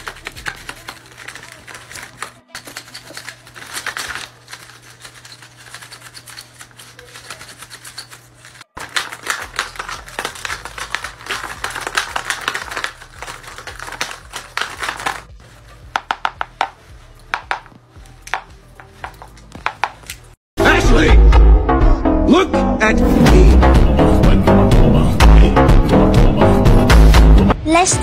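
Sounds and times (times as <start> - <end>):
paper puppet jaws clacking: 0.0 - 15.3.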